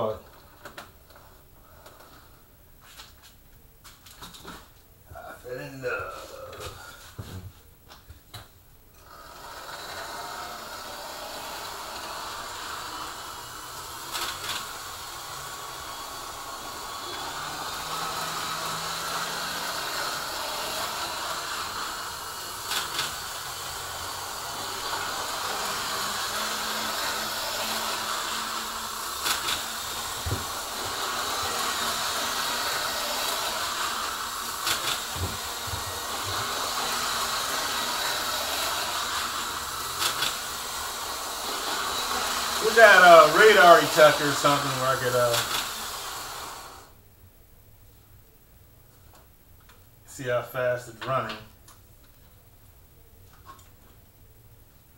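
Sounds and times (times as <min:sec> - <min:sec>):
model train motor whir: 0:09.0 - 0:47.0.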